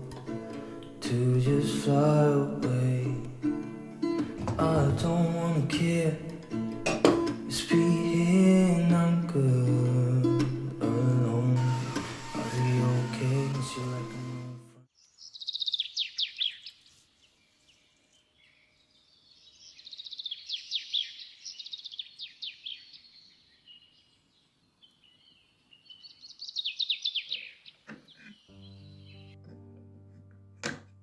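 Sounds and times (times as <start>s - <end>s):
music: 0.0s - 14.9s, 28.5s - 31.0s
songbird singing: 14.9s - 29.4s.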